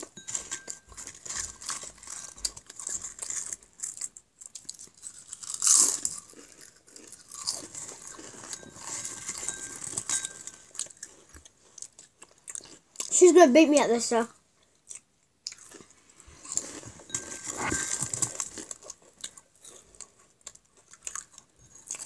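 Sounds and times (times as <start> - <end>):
crisps being chewed: 0.0 - 13.2, 14.6 - 22.0.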